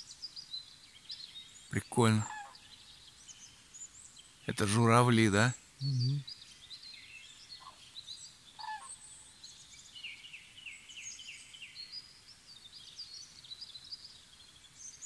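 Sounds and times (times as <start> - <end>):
songbirds chirping and trilling: 0.0 - 15.0
faint low bird calls: 1.7 - 2.8.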